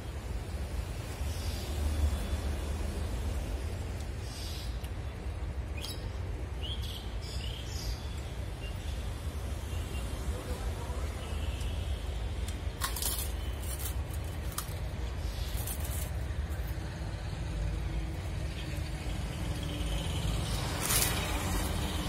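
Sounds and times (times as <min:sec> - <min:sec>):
crackers being chewed: 0:12.4 - 0:16.7.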